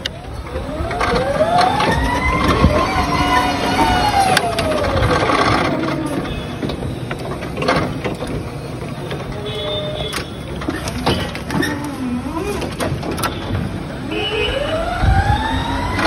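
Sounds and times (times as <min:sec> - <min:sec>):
forklift whine: 0:00.0 - 0:16.0
sharp knocks and clanks: 0:03.8 - 0:11.8.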